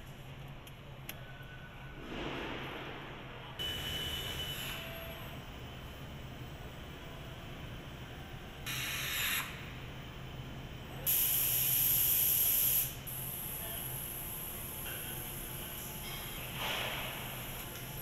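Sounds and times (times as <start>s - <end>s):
low machinery hum: 0.0s - 18.0s
compressed air hissing: 8.7s - 9.6s, 11.1s - 13.0s.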